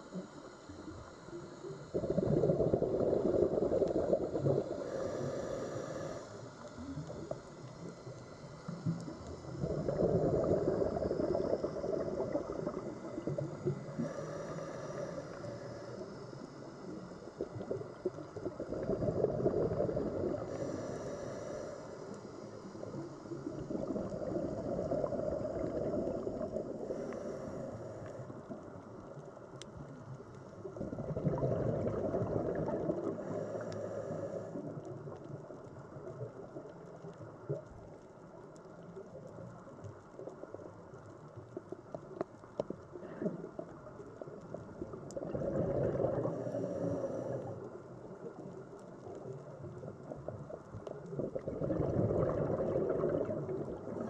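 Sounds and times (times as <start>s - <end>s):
gurgle of exhaled bubbles: 1.6s - 6.1s, 8.7s - 20.8s, 22.7s - 28.6s, 30.6s - 37.7s, 42.5s - 54.0s
regulator inhalation hiss: 3.0s - 9.6s, 10.8s - 17.6s, 20.0s - 23.6s, 24.6s - 28.5s, 33.1s - 34.6s.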